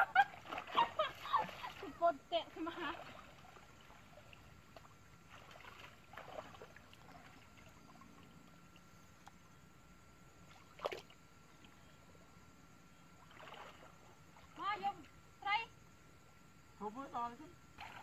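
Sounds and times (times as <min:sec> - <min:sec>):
water sloshing and dribbling: 0:00.2 - 0:09.0, 0:10.4 - 0:11.8, 0:13.1 - 0:15.3, 0:17.7 - 0:18.0.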